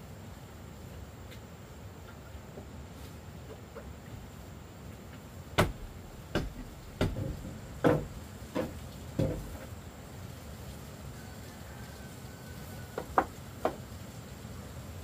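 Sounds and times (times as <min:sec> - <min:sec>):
tool striking wood: 0:05.6 - 0:09.6.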